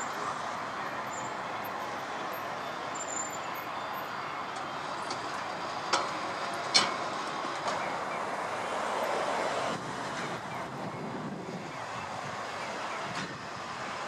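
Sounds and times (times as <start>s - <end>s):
streetcar running noise: 0.0s - 14.0s
streetcar wheels clanking over rail joints: 4.5s - 11.0s.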